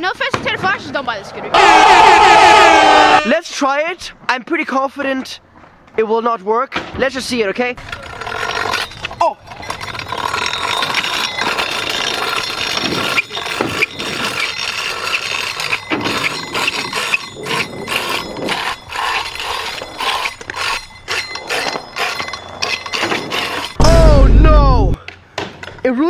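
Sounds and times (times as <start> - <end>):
metal blade scraping on concrete: 7.8 - 23.8.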